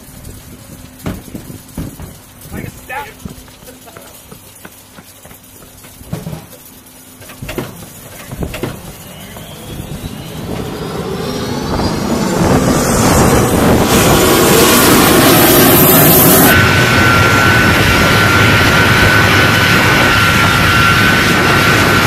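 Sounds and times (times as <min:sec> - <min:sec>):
footsteps on ladder: 0:03.2 - 0:06.6
jet engines spooling up: 0:07.0 - 0:22.0.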